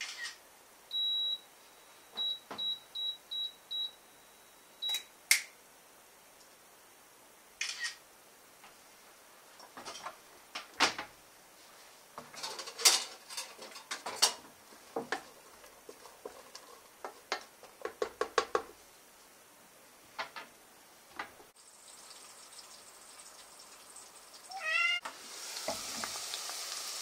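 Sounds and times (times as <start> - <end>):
wooden spatula tapping bowl: 17.0 - 18.7.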